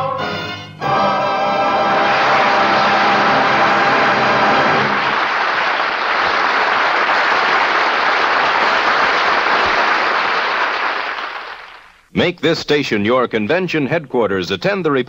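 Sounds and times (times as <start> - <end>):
choir and orchestra chord: 0.0 - 5.0
audience applauding: 1.8 - 12.0.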